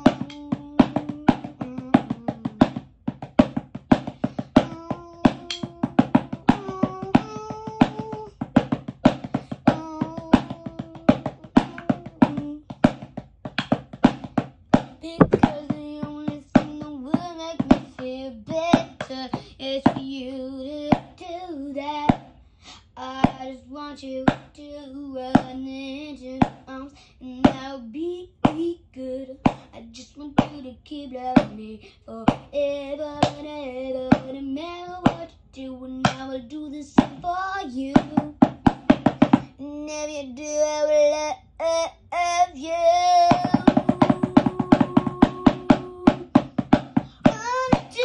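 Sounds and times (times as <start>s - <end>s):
person singing: 0.0s - 2.6s, 4.6s - 8.3s, 9.6s - 12.6s, 42.4s - 46.4s, 47.1s - 48.0s.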